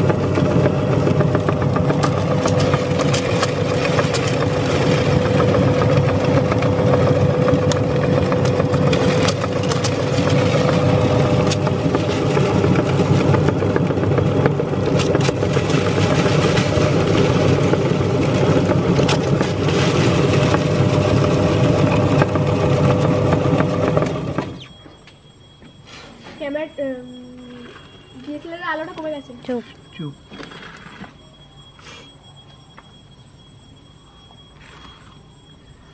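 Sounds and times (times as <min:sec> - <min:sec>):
electric meat grinder humming: 0:00.0 - 0:24.7.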